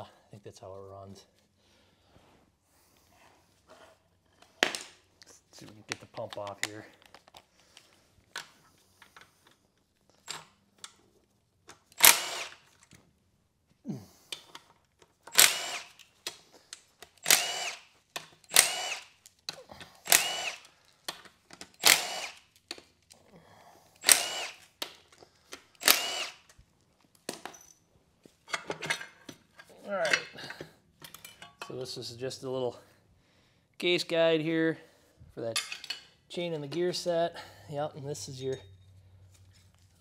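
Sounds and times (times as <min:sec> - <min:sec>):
power tool whirring: 0:11.9 - 0:12.8, 0:15.3 - 0:16.1, 0:17.1 - 0:19.3, 0:20.0 - 0:20.8, 0:21.7 - 0:22.6, 0:24.0 - 0:24.8, 0:25.7 - 0:26.6.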